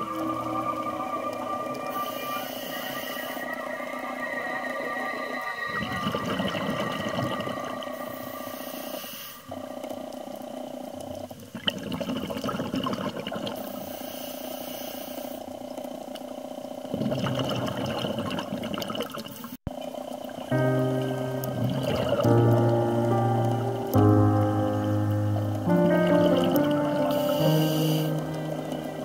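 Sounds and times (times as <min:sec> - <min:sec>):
regulator hissing inhale: 0:01.9 - 0:03.6, 0:08.0 - 0:09.5, 0:13.6 - 0:15.5, 0:27.1 - 0:28.6
bubbling exhales underwater: 0:05.7 - 0:08.3, 0:09.5 - 0:13.6, 0:16.5 - 0:20.6, 0:21.5 - 0:22.8.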